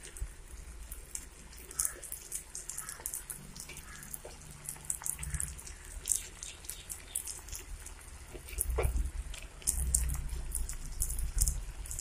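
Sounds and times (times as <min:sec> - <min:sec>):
curry bubbling in a pan: 0:00.0 - 0:12.0.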